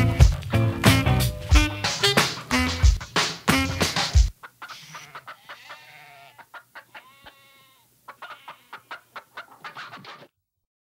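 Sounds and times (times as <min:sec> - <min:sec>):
drawn-out animal calls: 0:03.6 - 0:10.3
short sharp animal calls: 0:04.0 - 0:10.3.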